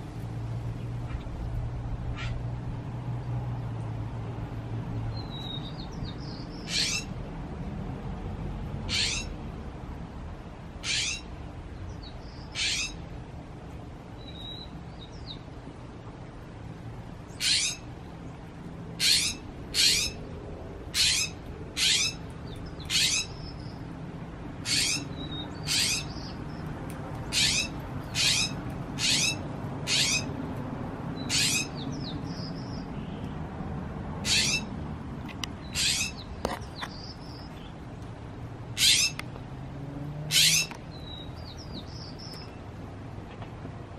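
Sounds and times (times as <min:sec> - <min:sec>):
bird harsh chack calls: 0:06.7 - 0:07.1, 0:08.9 - 0:09.3, 0:10.8 - 0:11.3, 0:12.5 - 0:13.0, 0:17.4 - 0:17.9, 0:19.0 - 0:20.2, 0:21.0 - 0:22.2, 0:22.8 - 0:23.4, 0:24.6 - 0:26.4, 0:27.3 - 0:30.3, 0:31.2 - 0:31.8, 0:34.2 - 0:34.7, 0:35.6 - 0:37.0, 0:38.8 - 0:39.2, 0:40.3 - 0:40.7.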